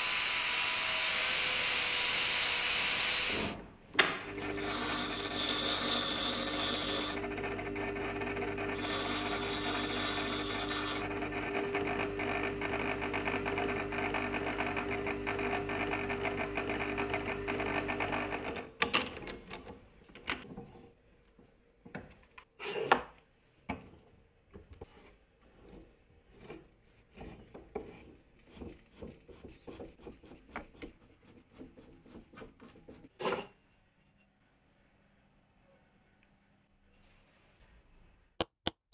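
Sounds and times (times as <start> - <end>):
bench grinder motor hum: 4.3 - 18.6.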